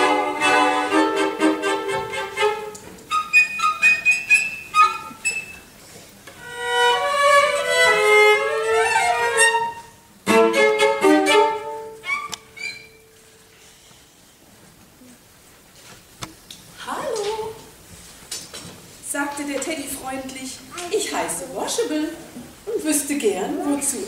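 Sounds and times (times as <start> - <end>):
cello quartet playing: 0.0 - 5.4, 6.4 - 12.8.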